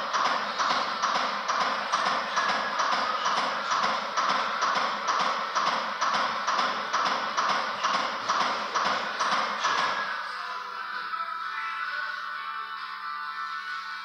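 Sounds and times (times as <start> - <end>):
manikin chest compressions clicking: 0.0 - 10.1.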